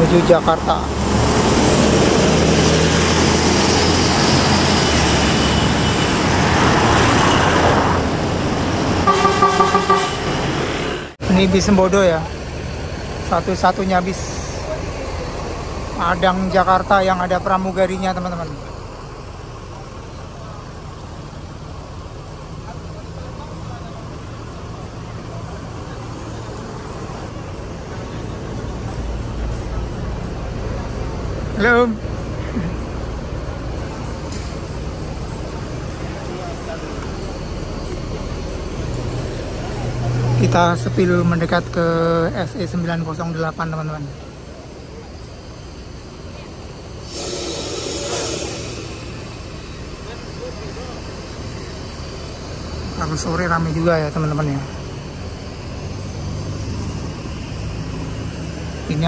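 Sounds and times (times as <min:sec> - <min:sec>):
rushing noise: 0:00.0 - 0:20.2, 0:22.0 - 0:59.0
bus engine pulling away: 0:00.0 - 0:59.0
road traffic noise: 0:00.0 - 0:59.0.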